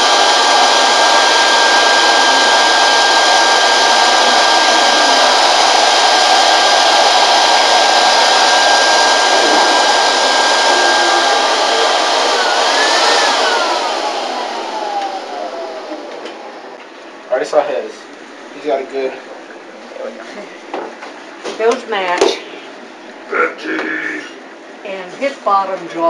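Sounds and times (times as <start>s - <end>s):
electric blower motor whining: 0.0s - 16.8s
rushing air: 0.0s - 16.8s.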